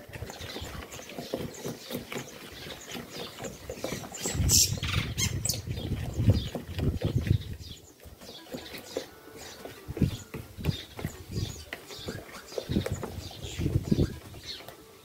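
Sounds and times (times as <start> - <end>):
wooden spoon beating batter: 0.0 - 14.9.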